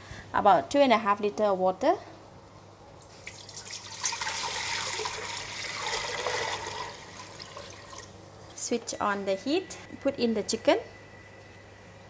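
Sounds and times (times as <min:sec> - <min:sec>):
water pouring into metal pot: 0:03.2 - 0:08.2.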